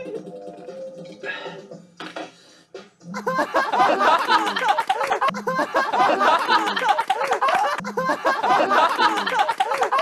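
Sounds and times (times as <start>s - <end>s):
young men laughing: 3.2s - 10.0s.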